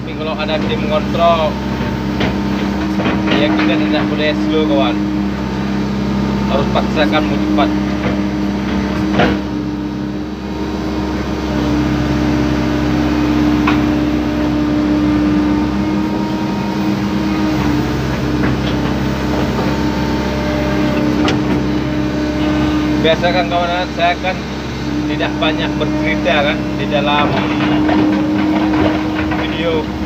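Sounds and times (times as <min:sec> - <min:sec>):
excavator diesel engine running: 0:00.0 - 0:30.0
short knocks: 0:26.5 - 0:30.0.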